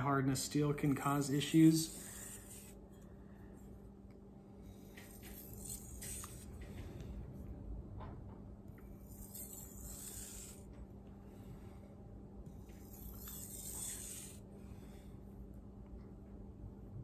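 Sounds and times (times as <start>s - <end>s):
blade scraping on whetstone: 1.6s - 2.8s, 5.1s - 6.5s, 9.1s - 10.7s, 12.7s - 14.4s.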